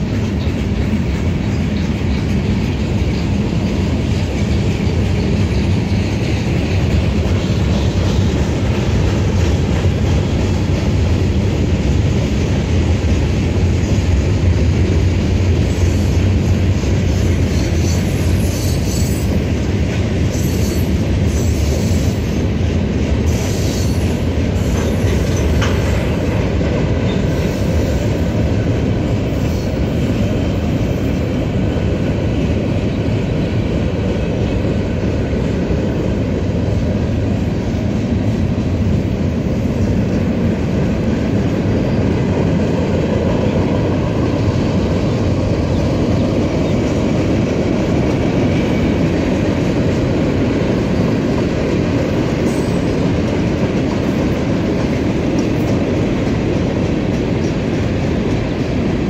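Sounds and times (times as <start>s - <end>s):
train wheels rumbling on rails: 0.0s - 59.0s
high wheel squeals: 17.2s - 19.3s.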